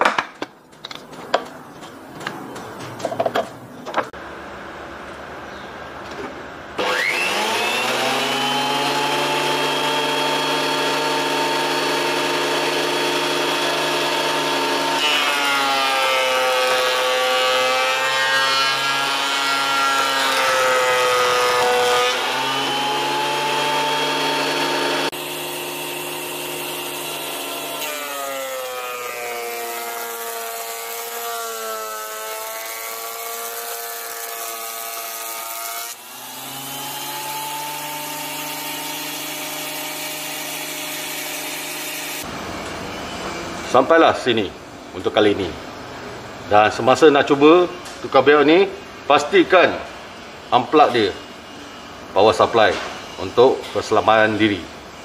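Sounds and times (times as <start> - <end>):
thickness planer motor whine: 6.8 - 34.9.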